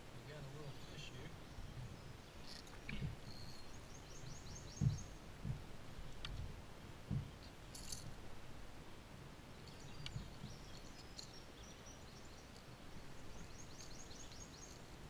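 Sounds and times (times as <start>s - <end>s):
songbird chirping: 0.0s - 8.8s, 9.4s - 15.0s
low thumps: 4.7s - 7.4s.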